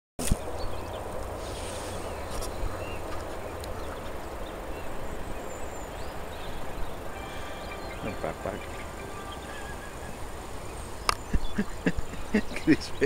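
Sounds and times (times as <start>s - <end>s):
steady outdoor noise: 0.2s - 13.0s
faint short bird calls: 7.1s - 10.3s.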